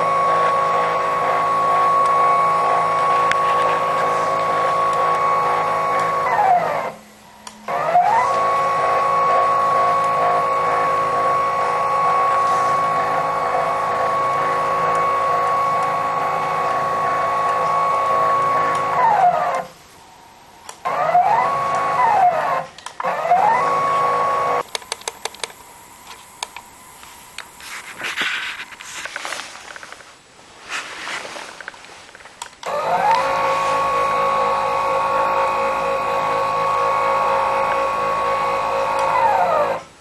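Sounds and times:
stepper motor whining: 0:00.0 - 0:29.4, 0:32.6 - 0:40.0
clicks and handling noise: 0:00.2 - 0:08.6, 0:24.6 - 0:33.9.

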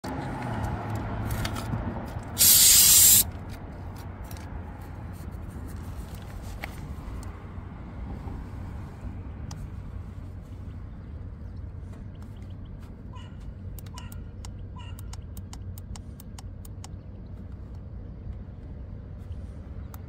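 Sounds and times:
low outdoor rumble: 0:00.0 - 0:20.0
air hissing from tyre valve: 0:02.4 - 0:03.3.

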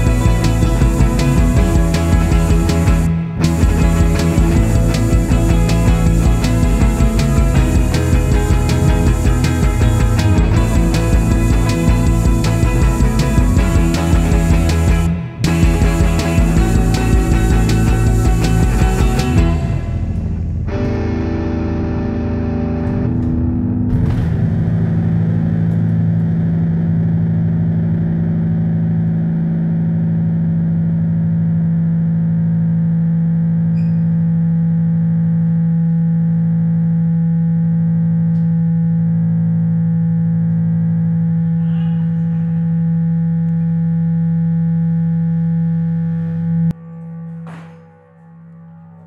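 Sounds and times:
band final chord and cymbals: 0:00.0 - 0:23.1
distorted amplifier drone: 0:00.0 - 0:49.0.

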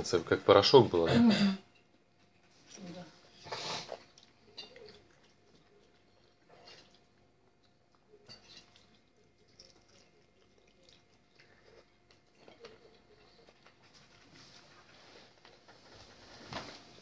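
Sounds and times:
person chewing and lip-smacking: 0:03.8 - 0:13.9.

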